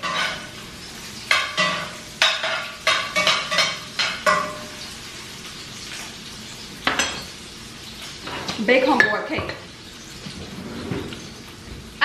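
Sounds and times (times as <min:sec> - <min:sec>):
food sizzling in pan: 0:00.0 - 0:12.0
metal utensil knocking on frying pan: 0:01.3 - 0:04.8.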